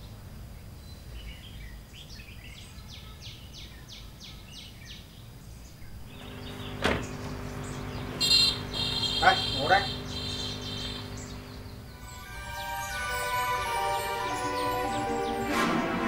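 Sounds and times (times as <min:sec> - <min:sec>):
outdoor background noise: 0:00.0 - 0:16.0
steady hum: 0:05.9 - 0:12.6
bird calling descending notes: 0:06.1 - 0:16.0.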